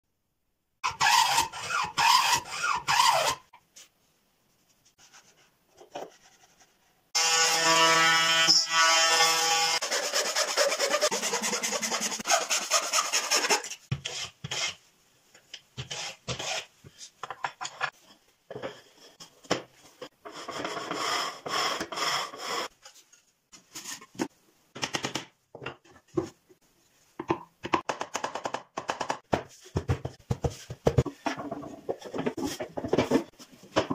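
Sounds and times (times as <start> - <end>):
hand plane shaving wood: 9.8 - 14.7.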